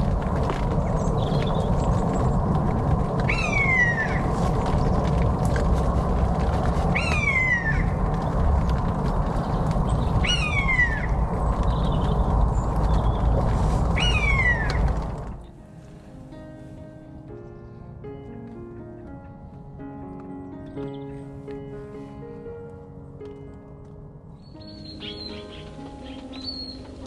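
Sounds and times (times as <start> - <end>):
steady low rumble: 0.0 - 17.6
buzzard calling: 3.3 - 4.3, 6.9 - 8.0, 10.2 - 11.2, 14.0 - 14.8.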